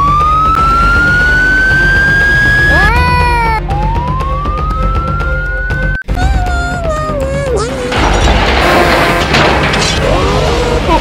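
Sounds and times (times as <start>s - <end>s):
siren wailing: 0.0s - 6.0s.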